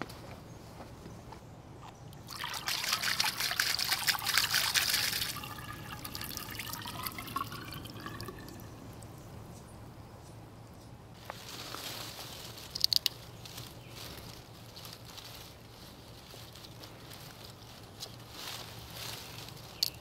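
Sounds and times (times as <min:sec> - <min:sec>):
water gushing from valve: 0:02.2 - 0:08.6
water gurgling and trickling: 0:02.2 - 0:09.1.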